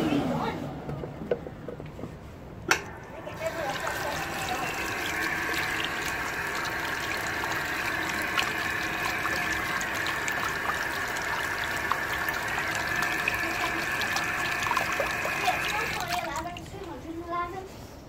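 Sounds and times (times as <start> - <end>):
tap water splashing into basin: 2.7 - 17.0.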